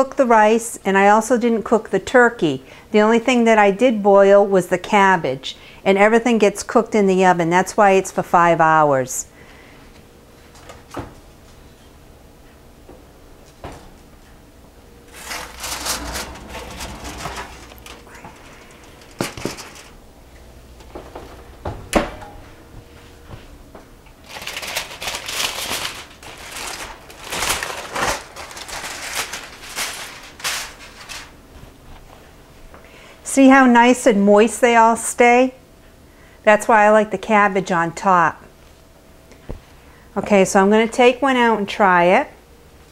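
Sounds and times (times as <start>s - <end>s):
aluminium foil crinkling: 15.1s - 20.0s, 24.2s - 31.4s.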